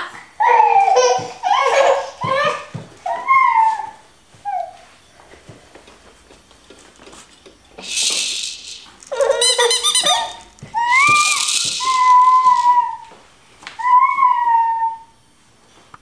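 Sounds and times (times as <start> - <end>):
plastic bead rattle shaking: 7.8 - 12.8
warbling high-pitched sound: 7.8 - 13.0
baby squealing: 8.7 - 13.1.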